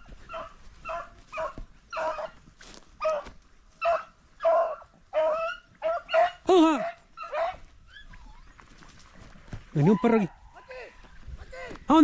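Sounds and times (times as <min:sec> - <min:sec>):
dog yelping: 0:00.3 - 0:02.4, 0:03.0 - 0:08.6.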